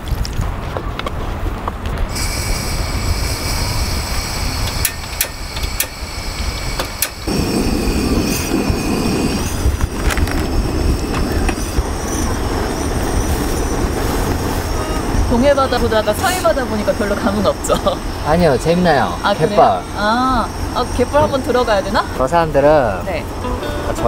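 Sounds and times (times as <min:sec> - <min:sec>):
burner flame roar: 0:00.0 - 0:23.4
wind buffeting microphone: 0:00.0 - 0:24.0
gas stove hissing: 0:02.0 - 0:24.0
igniter clicks: 0:04.4 - 0:07.3.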